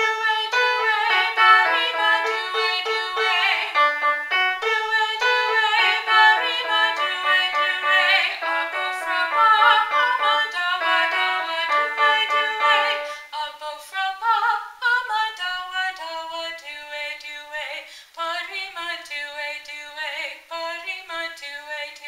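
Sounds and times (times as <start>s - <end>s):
woman singing: 0.0s - 3.9s, 4.6s - 22.0s
upright piano: 0.0s - 13.2s.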